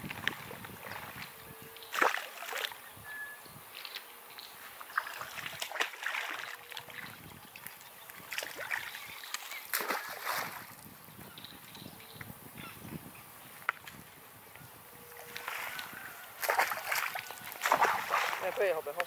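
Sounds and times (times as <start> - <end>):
water splashing and sloshing: 0.0 - 2.8, 3.7 - 11.0, 15.1 - 19.0.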